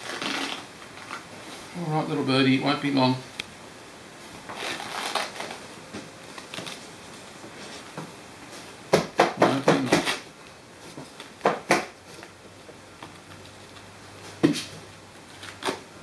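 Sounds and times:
sharp crackles: 0.0 - 1.2, 4.5 - 5.6
soft rustling of handling: 4.2 - 8.8.

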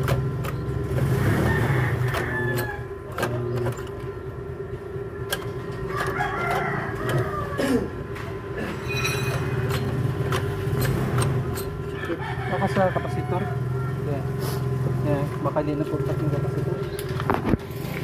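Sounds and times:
rooster crowing: 1.1 - 3.0, 5.7 - 7.9, 11.9 - 14.4
lever clicks and knocks: 9.2 - 11.8.

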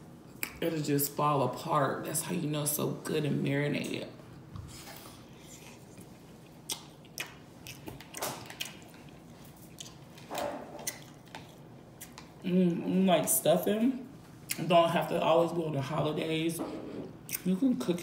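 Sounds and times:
person chewing with wet smacking: 4.9 - 12.5, 17.1 - 17.6.

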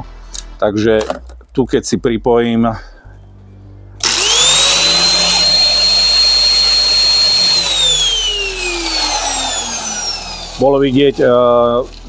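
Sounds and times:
angle grinder whining: 4.0 - 10.9.

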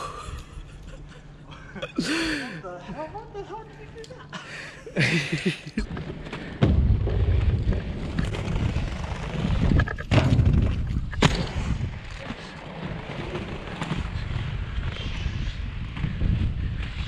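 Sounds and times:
skate wheels rumbling on paving: 5.0 - 17.0
wind on microphone: 6.7 - 17.0.

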